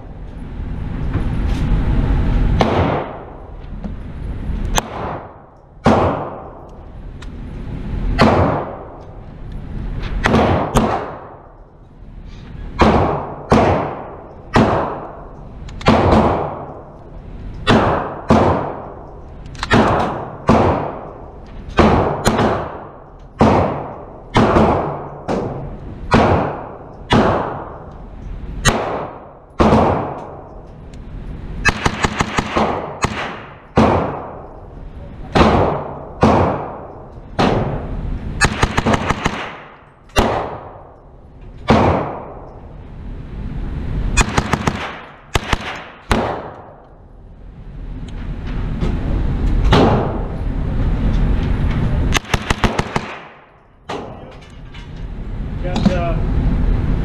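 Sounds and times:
low rumble: 0.0 - 57.0
gunshots ringing indoors: 2.5 - 3.5, 4.7 - 6.8, 7.9 - 9.2, 10.2 - 11.6, 12.6 - 30.7, 31.5 - 42.6, 44.1 - 47.0, 49.6 - 50.4, 52.1 - 54.4.

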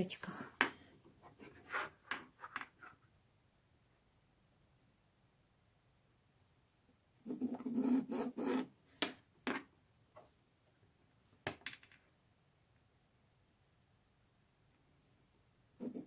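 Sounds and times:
pen scratching on fabric: 1.2 - 2.1, 7.2 - 8.7, 15.8 - 16.0.

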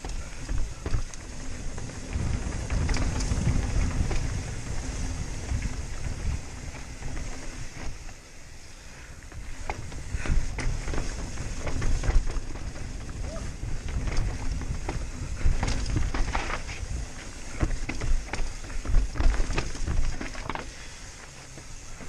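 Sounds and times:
wind buffeting microphone: 0.0 - 8.1, 9.2 - 20.6
bike clicking and rattling: 0.0 - 22.0
bike tyres rumbling on rocky trail: 0.0 - 22.0.

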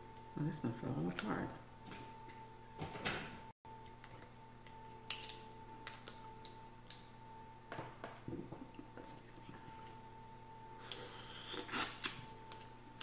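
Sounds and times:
faint steady hum: 0.0 - 13.0
seafood shells clicking and crackling: 5.1 - 7.0.

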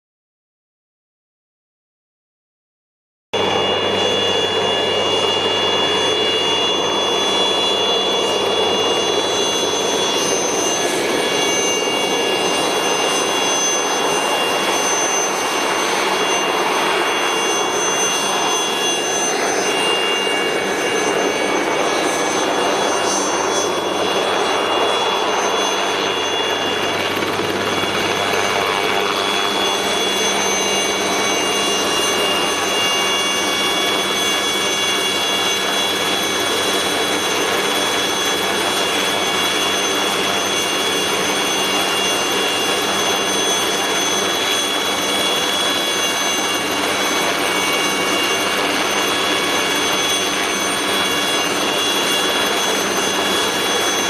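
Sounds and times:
helicopter engine whining: 3.4 - 54.0
helicopter rotors turning: 3.4 - 54.0.

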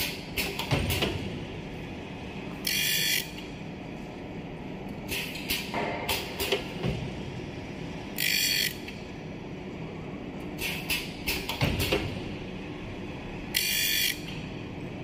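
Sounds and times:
mechanical clicks and knocks: 10.6 - 12.2.

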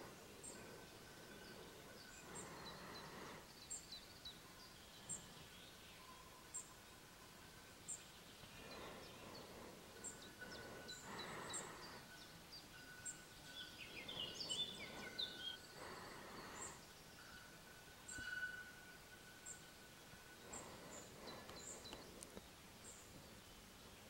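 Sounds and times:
thin steady high tone: 0.0 - 23.8
small birds chirping: 0.0 - 24.0.

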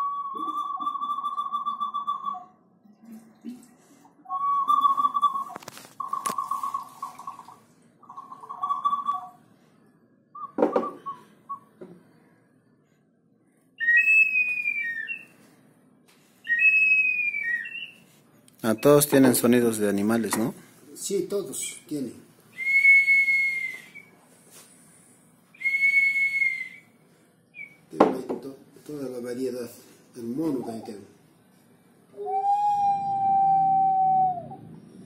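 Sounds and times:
two-tone falling whistles: 0.0 - 2.5, 13.8 - 15.4, 16.4 - 18.0, 25.6 - 26.9, 32.2 - 34.8
hard ceramic knock: 10.6 - 11.0, 28.0 - 28.4
warbling water whistle: 32.2 - 34.7.

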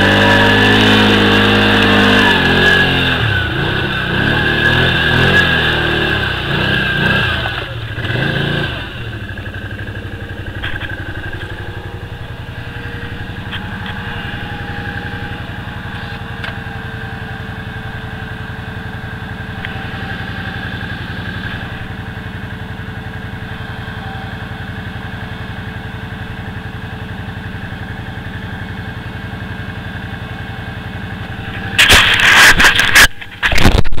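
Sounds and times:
atv engine idling: 0.0 - 33.6
loud ragged burst of noise: 31.3 - 34.0.

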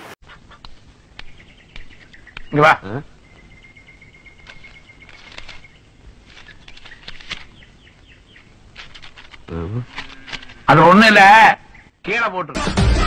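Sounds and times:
faint bird chirps: 0.2 - 10.2.

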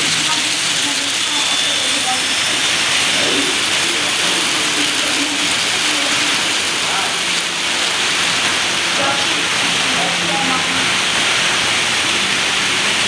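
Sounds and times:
model train wheels on rails: 0.0 - 8.6.

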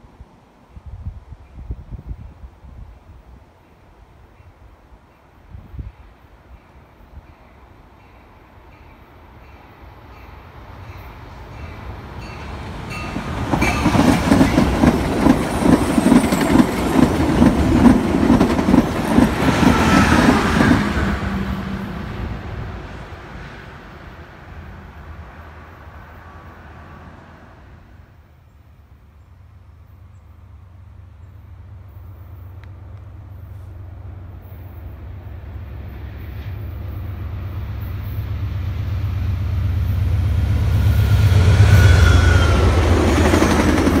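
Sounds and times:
train wheels clicking over rail joints: 13.0 - 20.9.

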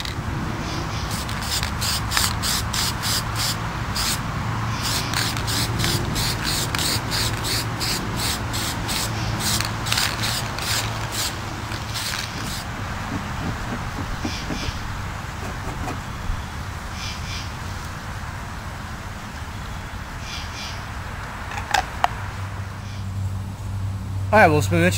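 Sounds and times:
spray paint can bursts: 1.1 - 4.2, 4.8 - 16.2.

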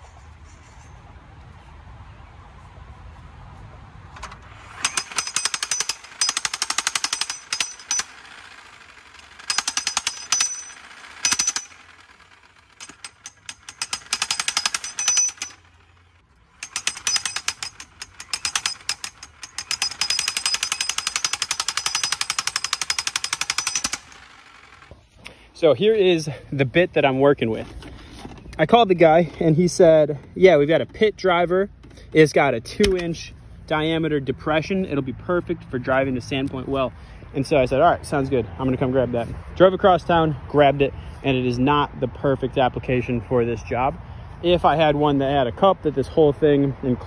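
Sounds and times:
jackhammer pounding metal pipe cap: 4.2 - 25.0, 32.8 - 33.2.

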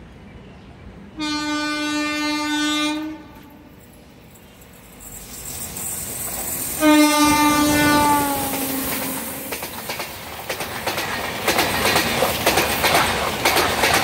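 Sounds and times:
rumble of approaching train: 0.0 - 14.0
train horn blasts: 1.2 - 3.7, 6.8 - 9.5.

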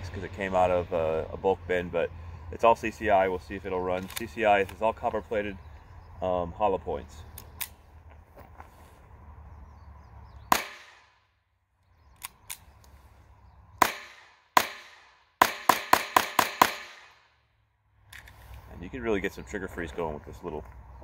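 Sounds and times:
pistol gunshots: 10.5 - 11.2, 13.8 - 17.3.

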